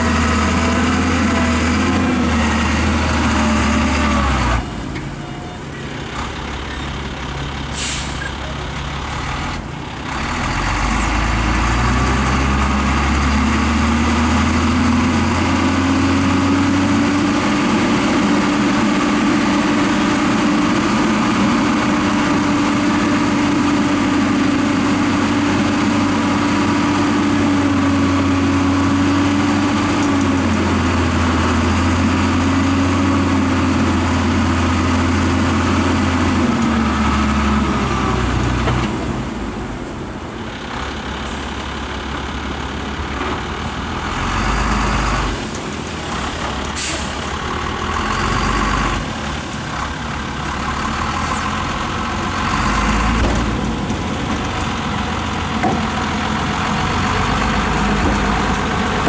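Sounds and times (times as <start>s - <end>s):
diesel truck engine: 0.0s - 59.0s.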